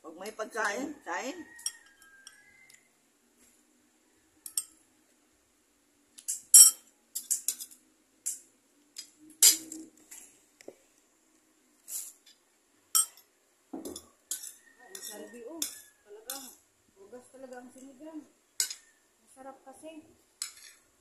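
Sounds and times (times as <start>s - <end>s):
cutlery clinking on a plate: 1.5s - 2.7s, 4.4s - 4.8s, 6.2s - 9.9s, 12.9s - 16.6s, 18.6s - 18.9s, 20.4s - 20.8s.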